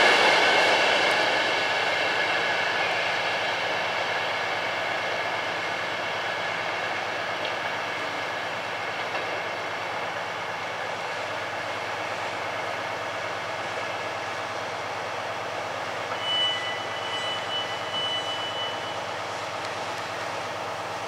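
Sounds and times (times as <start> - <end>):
train rushing on rails: 0.0 - 21.0
high steady squeal: 16.1 - 19.3.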